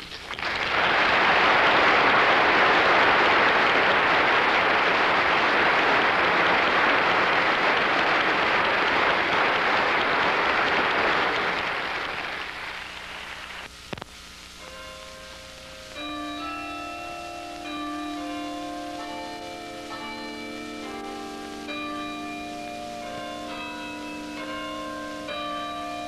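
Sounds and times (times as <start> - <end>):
audience applauding: 0.0 - 13.7.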